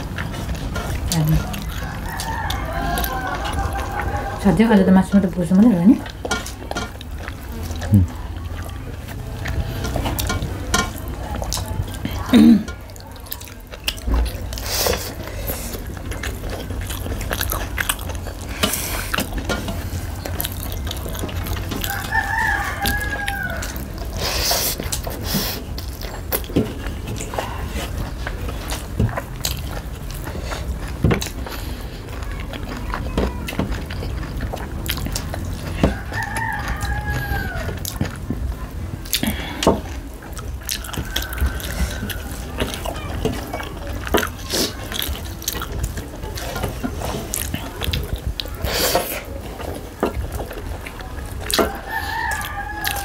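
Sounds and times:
people chewing and lip-smacking: 0.0s - 53.0s
rooster crowing: 1.6s - 4.6s, 21.8s - 23.8s, 35.7s - 37.9s, 40.7s - 43.1s, 51.5s - 53.0s.

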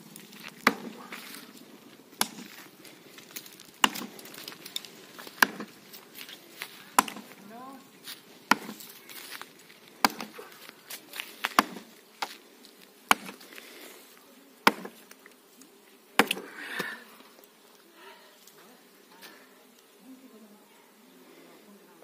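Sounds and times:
axe chopping tree: 0.4s - 1.3s, 2.2s - 2.6s, 3.8s - 4.4s, 5.2s - 5.7s, 6.9s - 7.4s, 8.5s - 8.9s, 10.0s - 10.6s, 11.2s - 12.4s, 13.0s - 13.5s, 14.6s - 15.1s, 16.2s - 16.9s.

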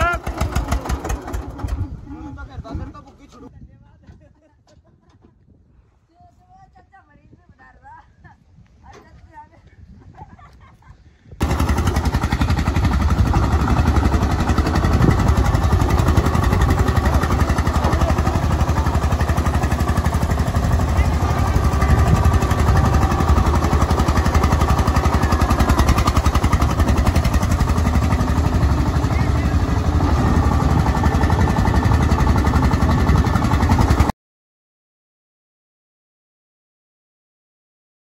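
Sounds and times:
tractor diesel engine running: 0.0s - 3.5s, 11.4s - 34.1s.

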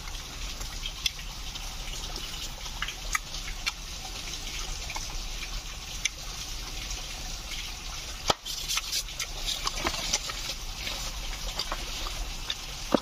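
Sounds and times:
flowing water rushing: 0.0s - 13.0s.

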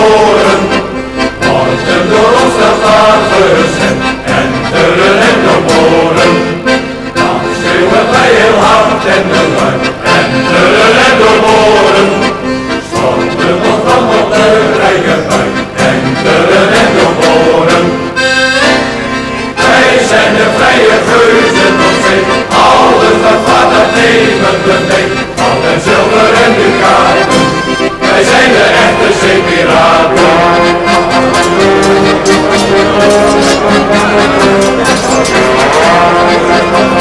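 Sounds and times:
accordion music: 0.0s - 37.0s.

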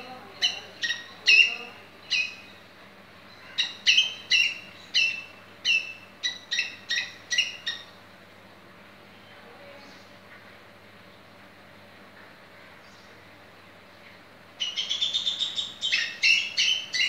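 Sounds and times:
squirrel chirping: 0.4s - 2.5s, 3.6s - 7.9s, 14.6s - 17.0s.

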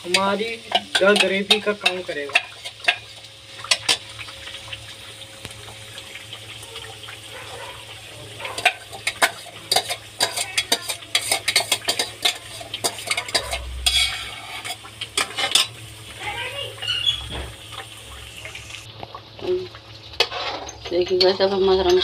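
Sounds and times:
paste sizzling in hot oil: 0.0s - 20.9s
metal spoon scraping and clinking: 8.6s - 15.7s, 20.2s - 22.0s.

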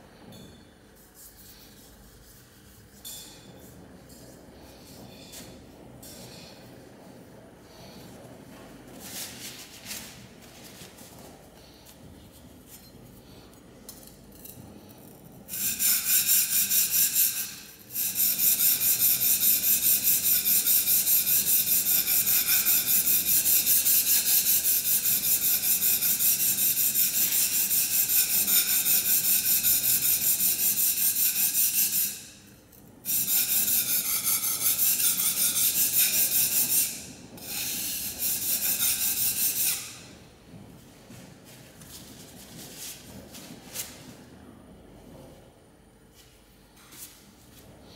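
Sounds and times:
plane iron scraping on sharpening stone: 1.0s - 3.6s, 15.5s - 32.4s, 33.1s - 40.0s.

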